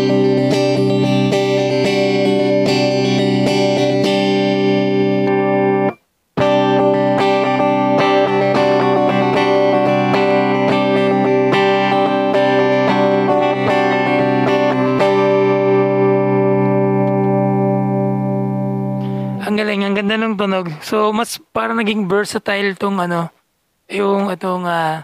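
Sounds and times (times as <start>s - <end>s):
electric guitar picked chords: 0.0s - 20.0s.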